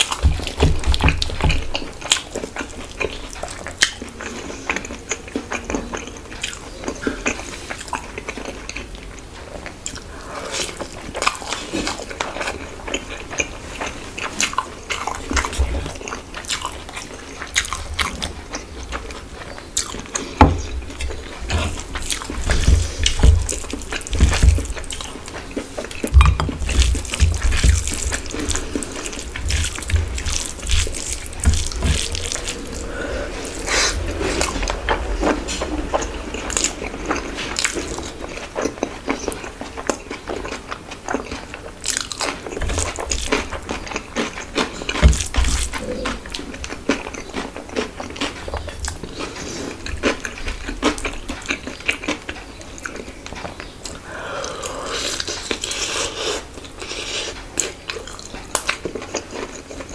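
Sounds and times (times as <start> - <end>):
wet chewing and lip smacks: 0.0 - 59.9.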